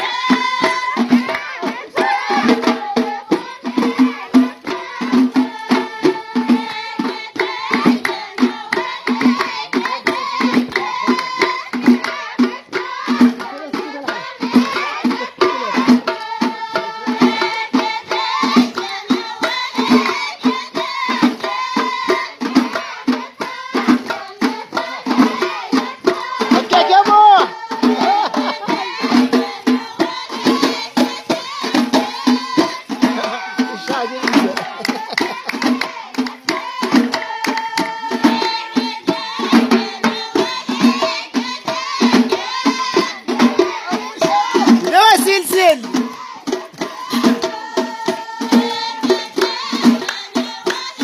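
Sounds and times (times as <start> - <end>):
frame drums beaten: 0.0 - 51.0
voices singing: 0.0 - 51.0.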